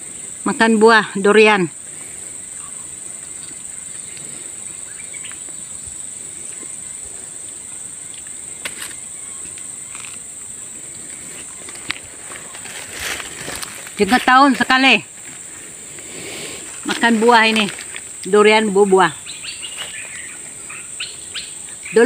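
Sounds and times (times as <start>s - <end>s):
insect chorus droning: 0.0s - 22.0s.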